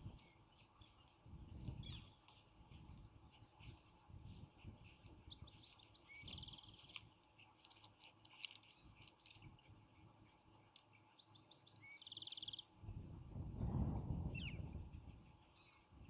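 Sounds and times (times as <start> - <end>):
songbird singing: 0.0 - 16.0
faint low rumble: 12.4 - 15.8.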